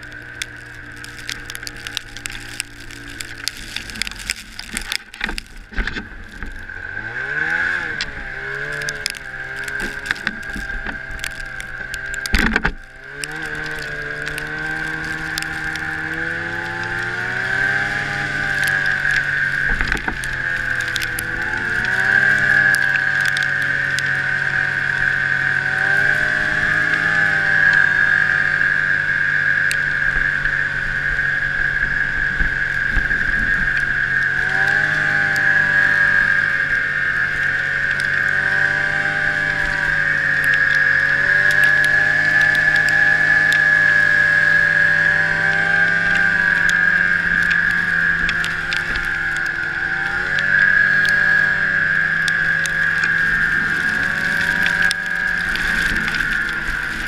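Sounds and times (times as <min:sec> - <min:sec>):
snowmobile engine revving: 0:00.0 - 0:57.0.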